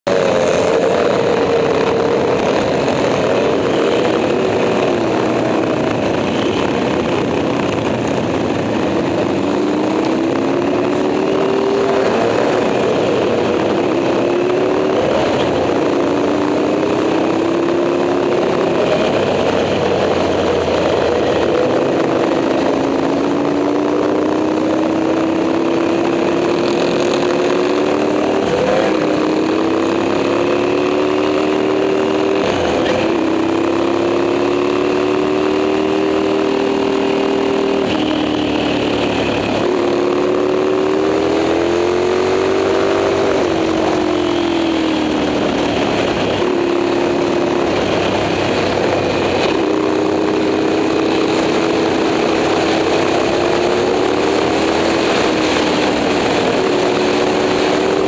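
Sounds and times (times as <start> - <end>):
motorcycle engine accelerating hard: 0.0 - 58.0.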